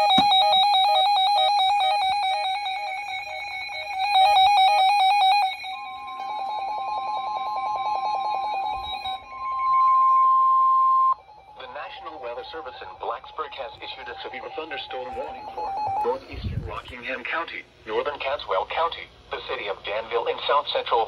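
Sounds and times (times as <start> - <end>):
warbling alarm tone: 0.0 - 16.7
steady high tone: 0.0 - 17.5.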